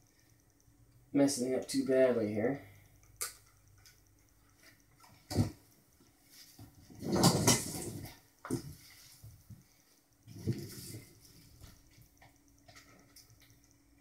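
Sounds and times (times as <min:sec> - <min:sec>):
scuffs and rustles of body moving: 0:05.4 - 0:11.9.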